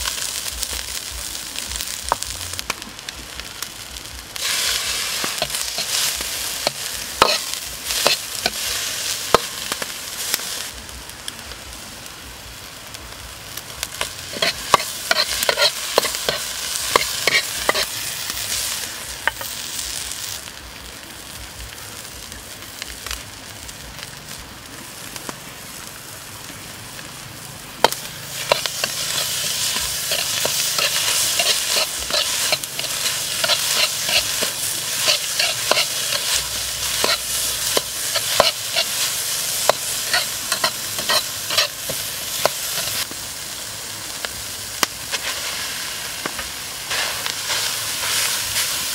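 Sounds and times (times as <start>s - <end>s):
vegetables sizzling: 0.0s - 48.9s
metal spatula scraping a wok: 4.4s - 9.4s, 14.0s - 19.5s, 27.8s - 43.0s.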